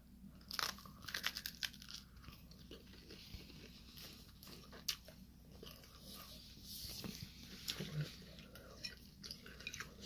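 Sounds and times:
faint chewing of pastry: 0:00.3 - 0:10.0.

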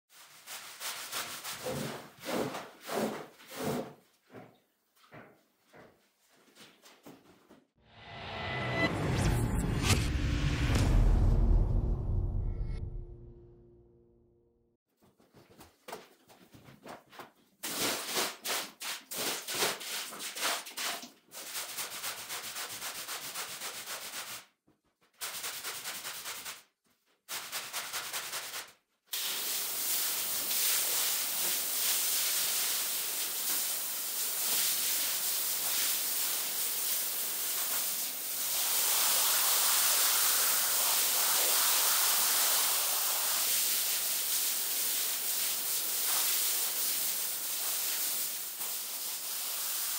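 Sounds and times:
hose spray hissing: 0:29.1 - 0:49.9.

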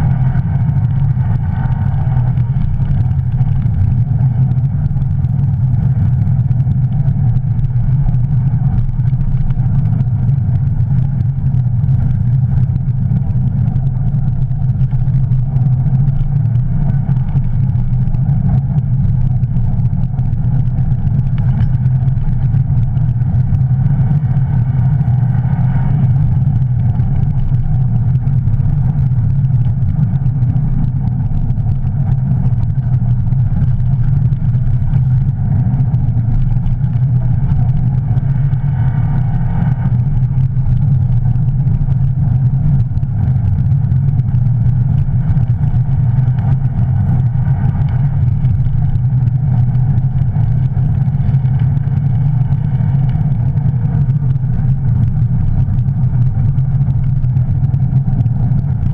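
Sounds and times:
rally car engine running hard: 0:00.0 - 0:58.9
studded tyres on ice and snow: 0:00.0 - 0:58.9.

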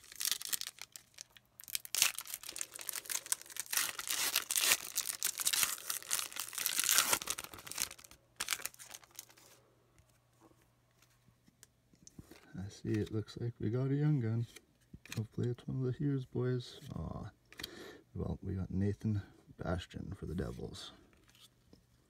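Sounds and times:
foil wrapper tearing and crinkling: 0:00.0 - 0:09.4.

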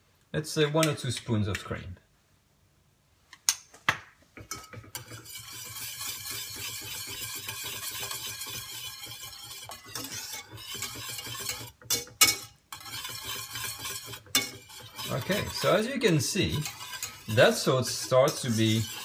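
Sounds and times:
whisk knocking on pan: 0:04.4 - 0:19.0
wire whisk beating in a pan: 0:04.4 - 0:19.0.

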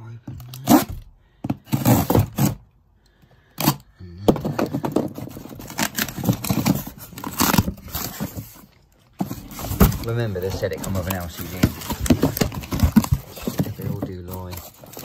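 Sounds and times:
knife cutting cardboard box: 0:00.4 - 0:02.6, 0:04.5 - 0:08.6, 0:09.2 - 0:15.0
packaging rustling and crackling: 0:04.4 - 0:15.0.

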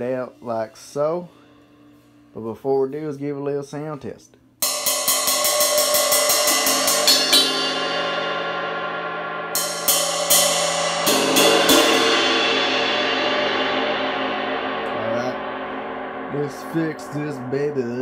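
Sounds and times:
cracked ride cymbal struck with drumstick: 0:04.6 - 0:18.0.

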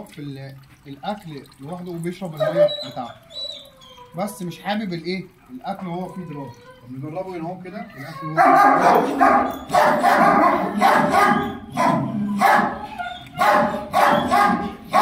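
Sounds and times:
dog barking: 0:02.4 - 0:02.8, 0:08.4 - 0:12.8, 0:13.4 - 0:15.0.

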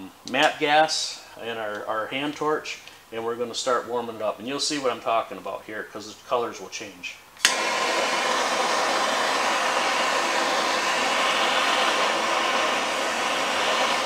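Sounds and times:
torch flame hissing: 0:07.4 - 0:14.0
torch lighting pop: 0:07.4 - 0:14.0.

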